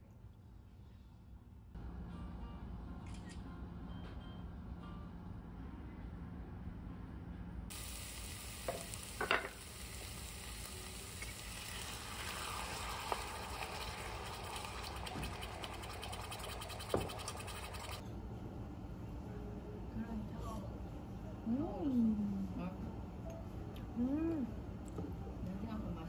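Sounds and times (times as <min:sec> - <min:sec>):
food sizzling in a pan: 0:07.7 - 0:18.0.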